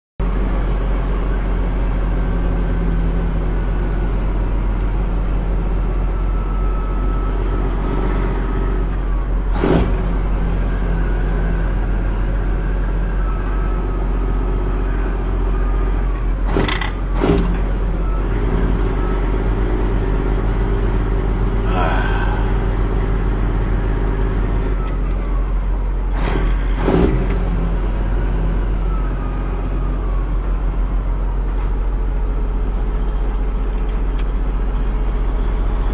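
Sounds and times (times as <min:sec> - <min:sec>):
diesel truck engine running low: 0:00.2 - 0:35.9
short sharp noises: 0:21.7 - 0:22.7.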